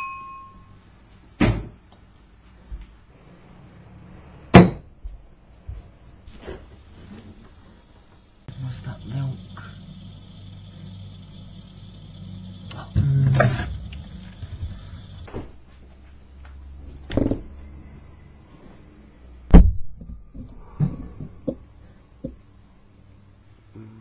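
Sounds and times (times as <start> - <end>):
low steady hum: 6.8 - 15.3.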